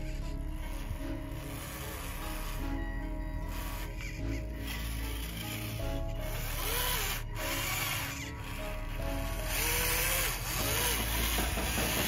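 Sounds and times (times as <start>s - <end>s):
background music: 0.0s - 12.0s
electric gear motor whine: 0.0s - 12.0s.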